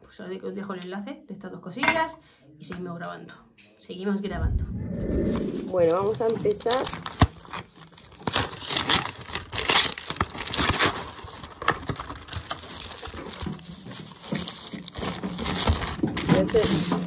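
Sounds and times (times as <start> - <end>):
paper and cardboard crinkling: 5.9 - 17.0.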